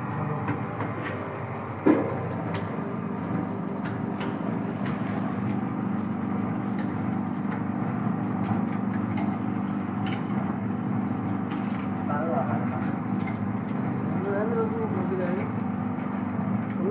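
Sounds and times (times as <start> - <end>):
juice machine motor humming: 0.0 - 16.9.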